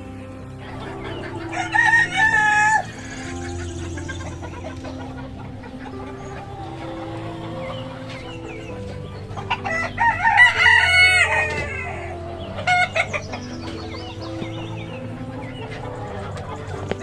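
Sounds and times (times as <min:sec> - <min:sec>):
rooster crowing: 0:00.9 - 0:04.5, 0:05.9 - 0:14.2.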